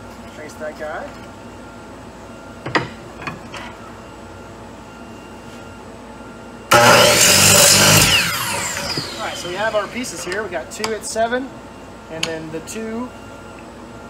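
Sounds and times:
miter saw cutting board: 6.7 - 10.4
saw blade winding down: 6.7 - 10.4.

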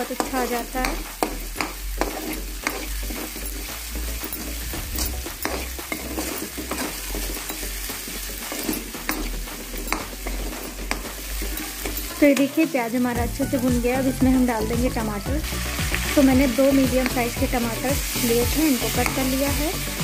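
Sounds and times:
metal spatula scraping a pan: 0.0 - 13.7
onions sizzling in hot oil: 0.0 - 20.0.

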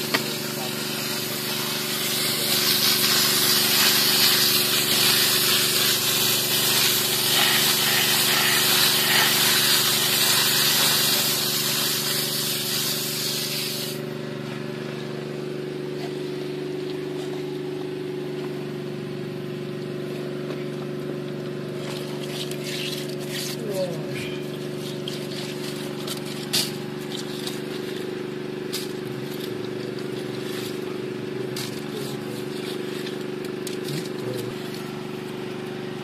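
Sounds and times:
water jet spraying on gravel: 0.0 - 14.8, 21.5 - 36.0
steady low hum: 13.4 - 36.0.

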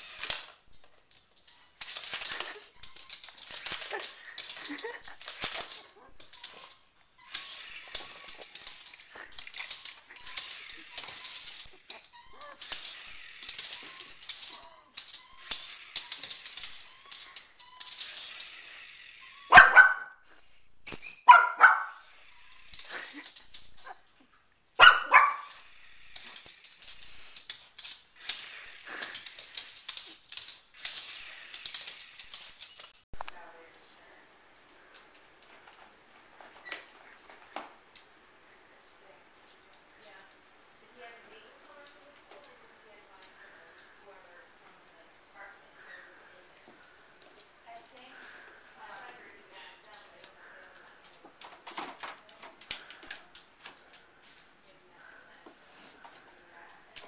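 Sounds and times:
small dog barking: 19.5 - 20.2, 21.3 - 22.0, 24.8 - 25.6.

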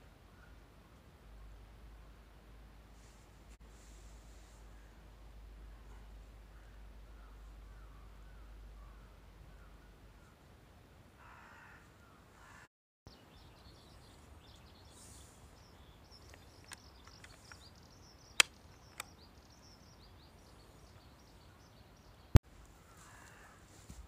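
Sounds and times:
faint bird calls: 5.7 - 10.5, 11.2 - 23.8
sharp plastic clicks: 16.2 - 17.7, 18.3 - 19.2.

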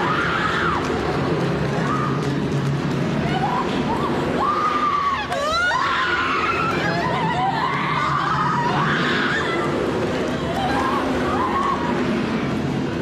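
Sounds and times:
people screaming: 0.0 - 2.5, 3.1 - 12.8
people laughing: 6.6 - 8.8.

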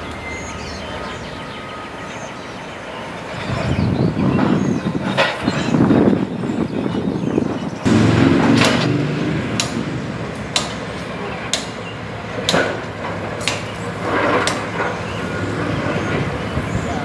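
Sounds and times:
low machinery rumble: 7.8 - 17.0.

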